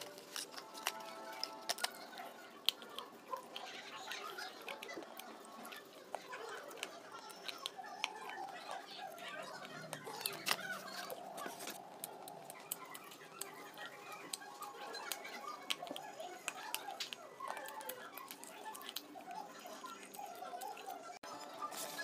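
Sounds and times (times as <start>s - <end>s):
slate pencil crunching: 0.0s - 22.0s.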